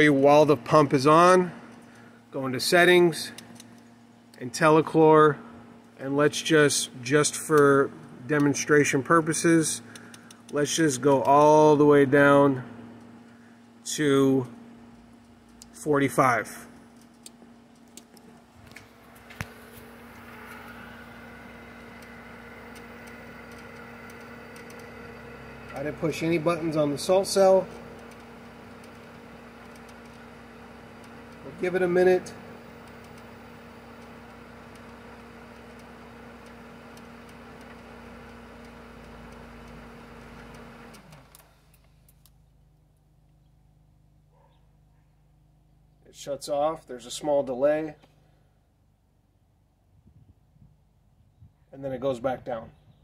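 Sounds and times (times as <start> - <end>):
pump motor humming: 17.0 - 41.8
light ticking: 21.4 - 30.3, 32.6 - 42.4.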